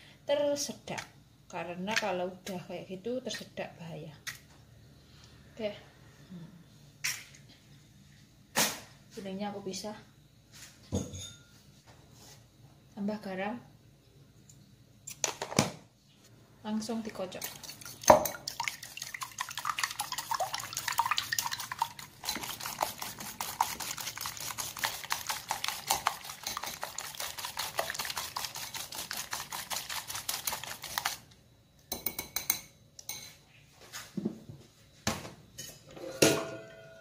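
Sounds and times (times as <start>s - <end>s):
dishes clinking and knocking: 10.9s - 11.6s, 31.9s - 33.4s, 35.6s - 37.0s
whisk clicking against bowl: 17.4s - 31.2s.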